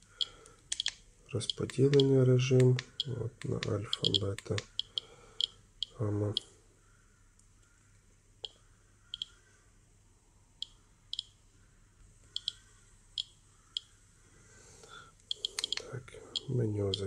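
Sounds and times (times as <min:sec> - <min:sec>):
geiger counter clicking: 0:00.2 - 0:06.4, 0:08.4 - 0:09.4, 0:12.4 - 0:12.6, 0:15.3 - 0:17.0.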